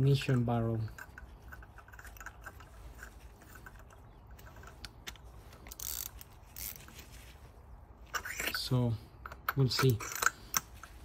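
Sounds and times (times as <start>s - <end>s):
metal tools clicking and rattling: 0.1s - 5.1s, 8.1s - 11.0s.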